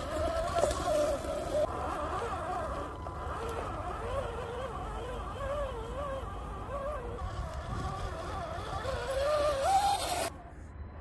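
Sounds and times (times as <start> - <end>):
rc car electric motor whining: 0.0 - 10.3.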